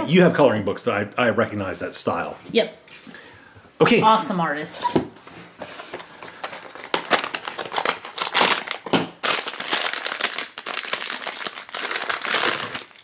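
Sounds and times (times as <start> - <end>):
foil bag crinkling: 5.8 - 13.0.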